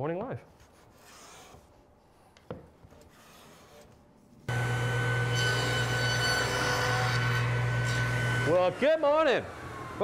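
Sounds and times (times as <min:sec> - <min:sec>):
hand plane shaving a board: 0:00.7 - 0:01.7
table saw cutting wood: 0:04.5 - 0:10.0.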